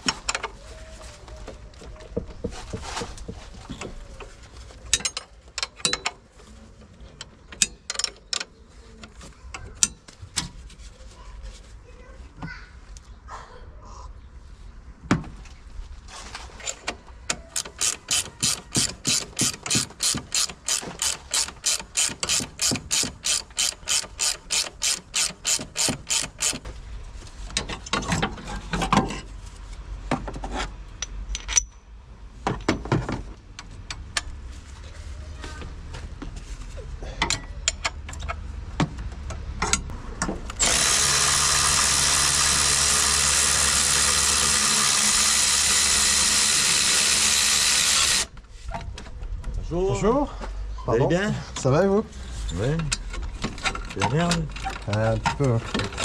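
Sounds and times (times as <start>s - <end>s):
metal parts knocking and clanking: 4.9s - 6.2s, 16.6s - 26.7s, 30.2s - 33.2s, 52.8s - 56.0s
ratchet wrench clicking: 17.4s - 26.6s.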